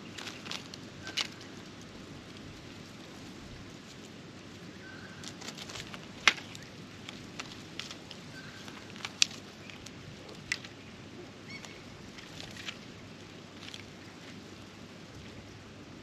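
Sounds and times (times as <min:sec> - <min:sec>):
beaks tapping on dry straw: 0:00.0 - 0:02.4, 0:04.8 - 0:14.4.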